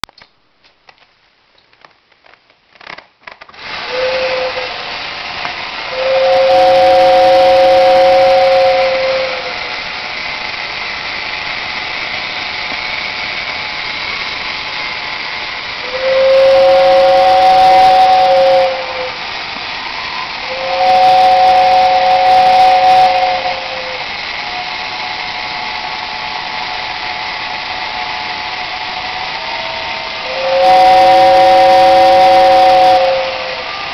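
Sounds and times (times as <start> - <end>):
two-note whistle: 5.9 - 9.5, 29.4 - 33.9.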